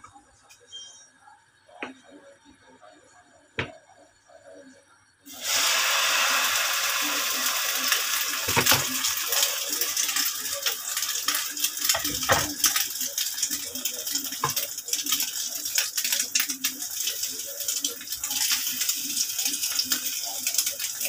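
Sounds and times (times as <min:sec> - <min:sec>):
batter sizzling in hot oil: 0:05.3 - 0:21.0.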